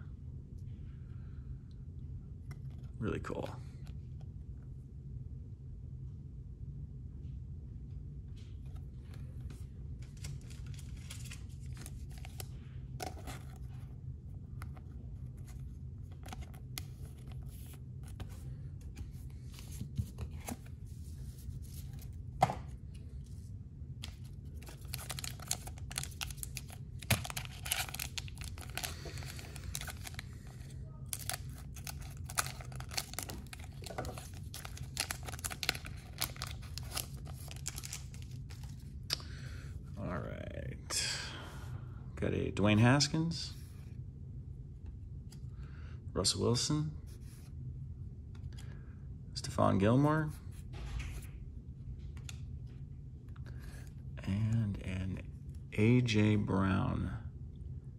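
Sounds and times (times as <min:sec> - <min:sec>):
steady low hum: 0:00.0 - 0:57.9
cards crackling when handled: 0:08.7 - 0:13.8, 0:14.6 - 0:23.4, 0:24.0 - 0:39.3
foil wrapper crinkling and tearing: 0:24.5 - 0:38.8.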